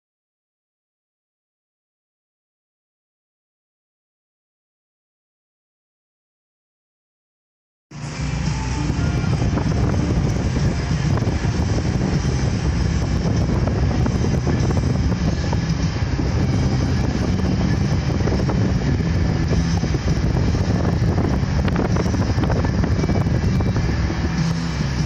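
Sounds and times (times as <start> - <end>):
pickup truck engine exhaust: 7.9 - 25.0
road noise: 7.9 - 25.0
wind buffeting microphone: 8.3 - 25.0.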